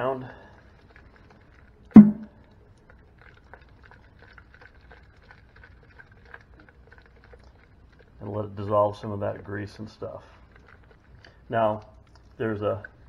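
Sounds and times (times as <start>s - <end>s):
metal housing knocking on sink: 2.0s - 2.3s.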